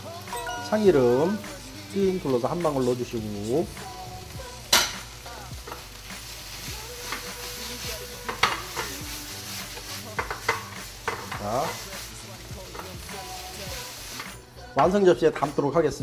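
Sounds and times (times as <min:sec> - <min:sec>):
food sizzling in frying pan: 0:00.0 - 0:16.0
pan and utensil knocking: 0:04.7 - 0:05.0, 0:08.2 - 0:09.0, 0:10.1 - 0:11.5.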